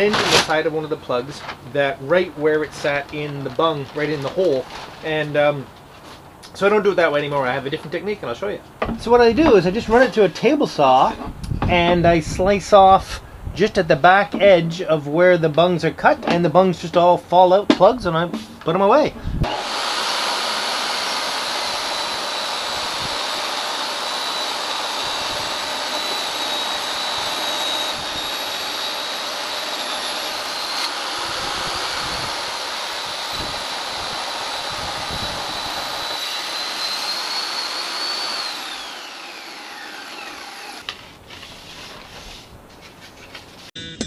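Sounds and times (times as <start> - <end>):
saw blade spinning down: 19.4 - 40.9
table saw whining: 19.4 - 41.0.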